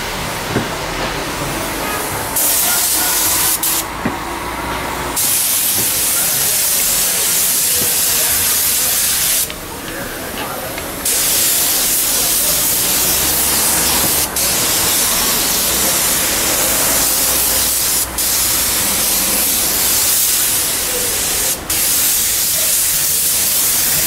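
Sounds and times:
paint spray gun hissing: 2.4s - 3.9s, 5.2s - 9.6s, 11.0s - 24.0s.

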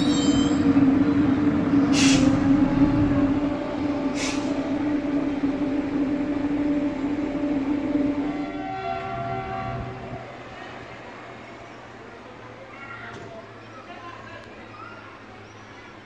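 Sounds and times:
train equipment humming: 0.0s - 12.0s
air release hisses: 1.9s - 2.4s.

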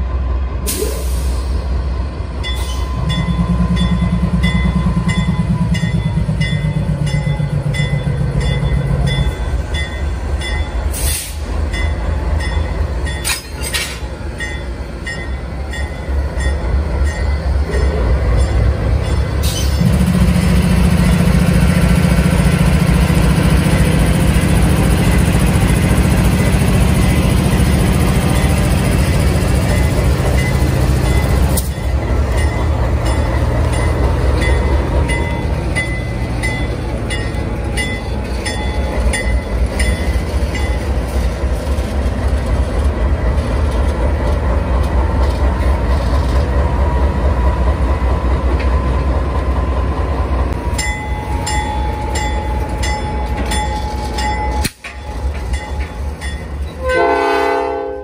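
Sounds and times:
locomotive engine rumble: 0.0s - 57.9s.

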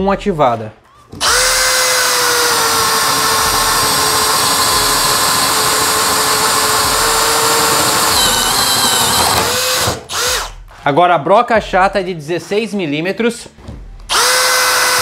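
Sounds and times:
cordless drill whining: 1.1s - 10.6s, 14.1s - 15.0s.

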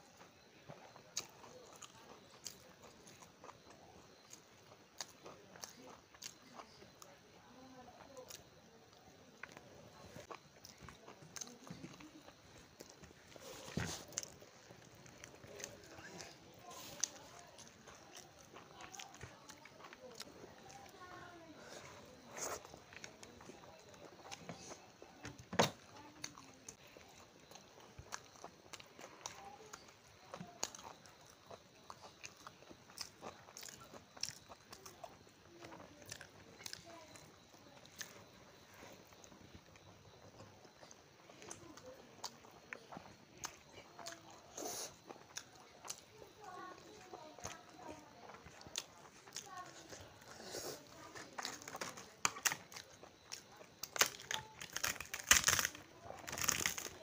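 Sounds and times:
person chewing food: 0.0s - 7.2s, 8.1s - 57.0s
fried flatbread crackling: 46.4s - 57.0s.

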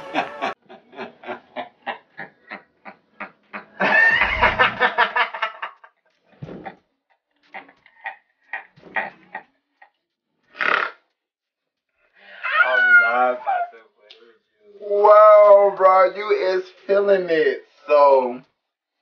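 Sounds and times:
person laughing hard: 0.0s - 5.8s.

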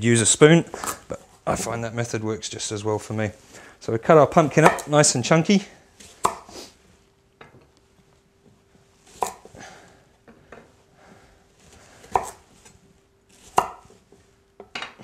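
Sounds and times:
knife chopping on cutting board: 4.6s - 4.9s, 6.2s - 6.5s, 9.2s - 9.5s, 12.1s - 12.4s, 13.5s - 13.9s.

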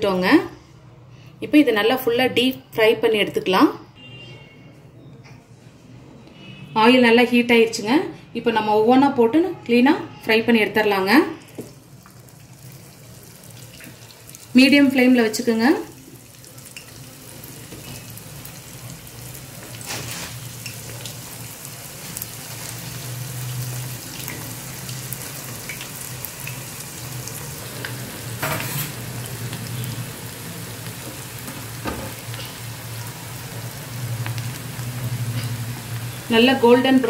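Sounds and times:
deep-frying sizzle and bubbling: 11.0s - 37.0s
oil crackles: 16.0s - 28.1s.

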